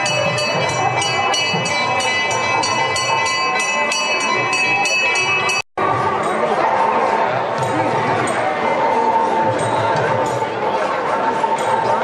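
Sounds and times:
bell rung rapidly: 0.0s - 6.6s.

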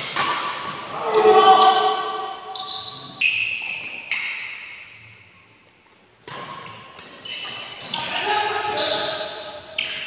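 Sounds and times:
racket hitting shuttlecock: 0.0s - 1.8s
shoe squeaks on court floor: 2.5s - 4.9s, 7.1s - 10.0s.

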